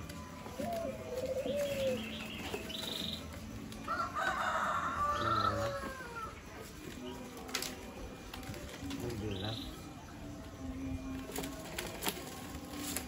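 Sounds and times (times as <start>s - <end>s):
rooster crowing: 3.9s - 6.3s.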